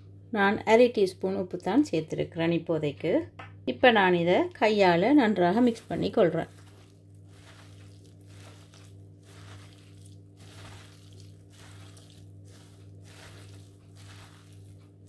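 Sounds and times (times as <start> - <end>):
steady low hum: 0.0 - 15.0
hand kneading food squelching: 5.0 - 15.0.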